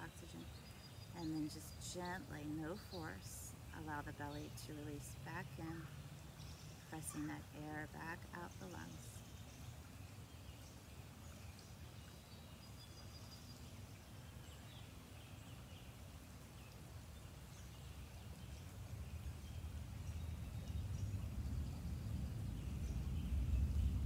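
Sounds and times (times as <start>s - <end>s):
low rumble: 19.1s - 24.0s.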